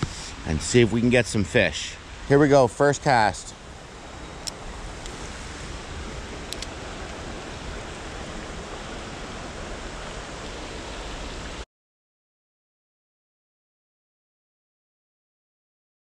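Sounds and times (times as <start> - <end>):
river flowing over rocks: 0.0 - 11.6
light clicks: 6.5 - 6.7.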